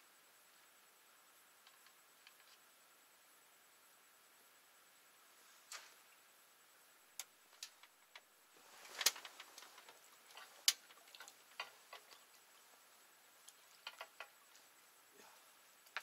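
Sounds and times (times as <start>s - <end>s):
quiet hiss: 0.0s - 16.0s
faint clicks and knocks: 1.6s - 2.6s, 7.2s - 14.9s, 15.7s - 16.0s.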